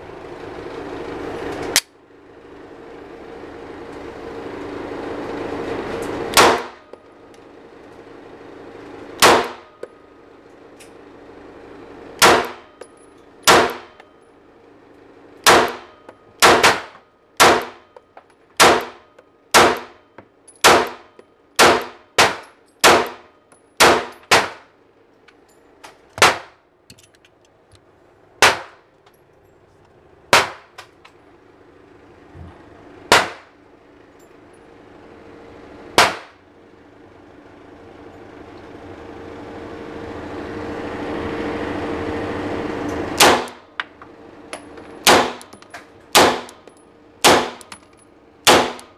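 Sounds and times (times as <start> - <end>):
pistol shots: 6.4 - 6.8, 9.2 - 9.7, 12.2 - 12.7, 13.5 - 14.0, 15.4 - 17.8, 18.6 - 20.0, 20.6 - 24.7, 26.2 - 26.6, 28.4 - 28.8, 30.3 - 30.8, 33.1 - 33.5, 36.0 - 36.4, 43.2 - 43.6, 45.0 - 45.5, 46.1 - 46.6, 47.2 - 47.7, 48.5 - 48.9.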